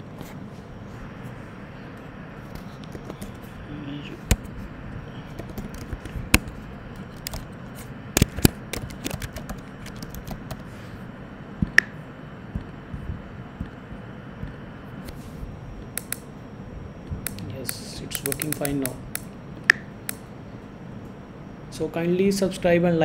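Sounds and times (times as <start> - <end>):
steady background hiss: 0.0 - 23.0
keyboard and mouse clicks: 8.2 - 10.6, 16.0 - 16.2, 17.2 - 19.0.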